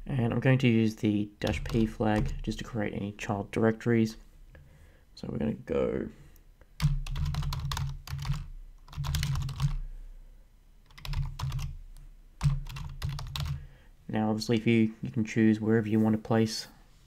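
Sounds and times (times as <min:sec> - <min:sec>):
typing on computer keyboard: 0:06.8 - 0:09.8, 0:10.9 - 0:11.8, 0:12.4 - 0:13.6.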